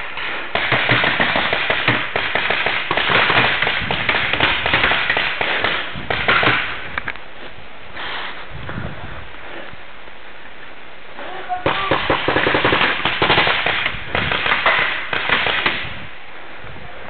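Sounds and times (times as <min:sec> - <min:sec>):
steady hiss: 0:00.0 - 0:17.0.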